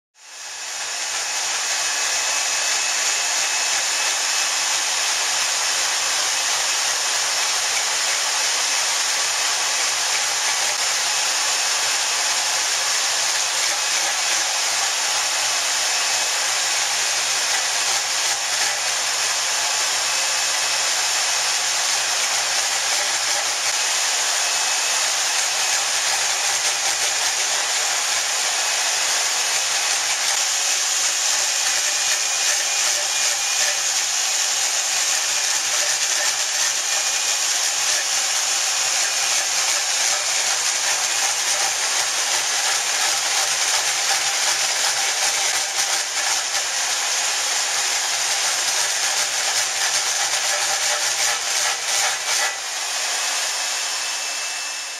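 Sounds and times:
boring bar drive whirring: 0:00.3 - 0:48.2.

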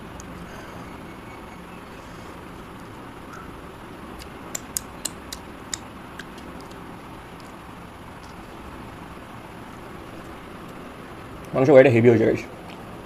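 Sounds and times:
steady background hiss: 0:00.0 - 0:13.0
wet mouth clicks and smacks: 0:04.2 - 0:06.8.

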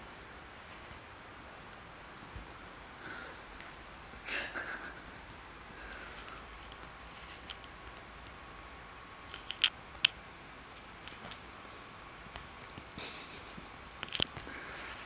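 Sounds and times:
claws scratching couch fabric: 0:06.2 - 0:07.8.

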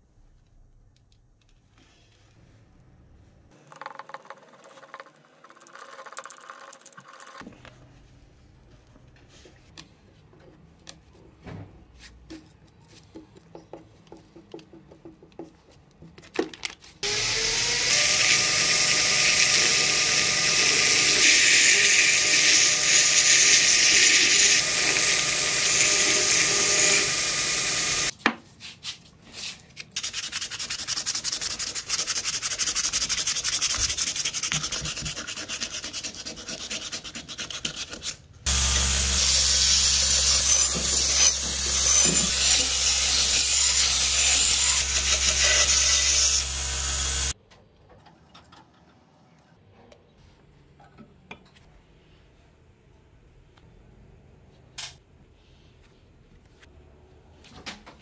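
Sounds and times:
belt grinder sanding wood: 0:17.0 - 0:28.1, 0:30.0 - 0:47.3
grinder humming on steel: 0:17.0 - 0:28.1, 0:38.5 - 0:47.3.

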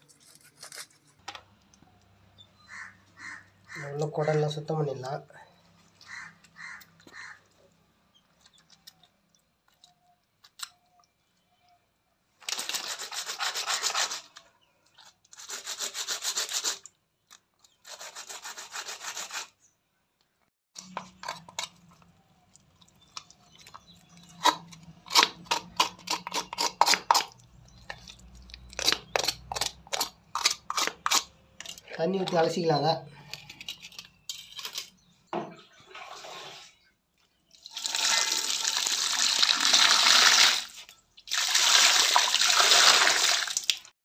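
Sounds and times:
rasping scrapes on stone: 0:17.8 - 0:19.6, 0:24.4 - 0:27.4.

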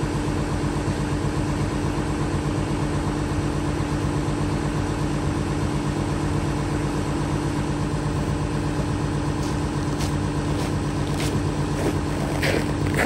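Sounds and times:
diesel engine idling: 0:00.0 - 0:13.0
footsteps crunching on snow: 0:09.4 - 0:13.0.

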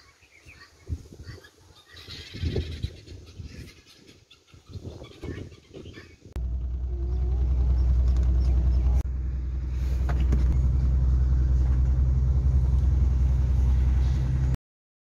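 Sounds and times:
car engine idling: 0:06.4 - 0:14.6.

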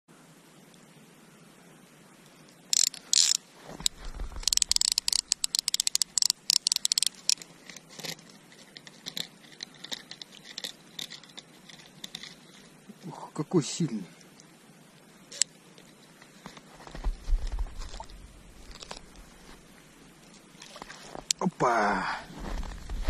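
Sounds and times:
fishing line rustling and scraping: 0:02.3 - 0:13.1, 0:15.3 - 0:21.4
rapid reel clicks: 0:02.8 - 0:03.4, 0:04.3 - 0:07.4.

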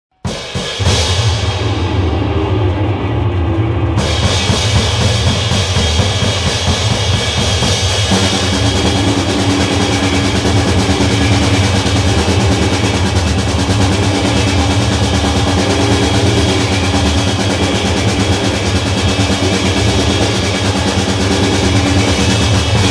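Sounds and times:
distorted noise wall: 0:00.2 - 0:22.9
heavy low drone: 0:00.8 - 0:22.9
steady humming tones: 0:00.8 - 0:22.9.

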